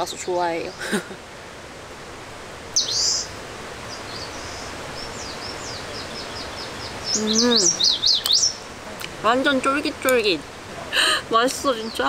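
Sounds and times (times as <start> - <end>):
songbird chirping: 0.0 - 1.0, 2.7 - 10.7, 11.4 - 12.0
faint outdoor hiss: 0.0 - 12.0.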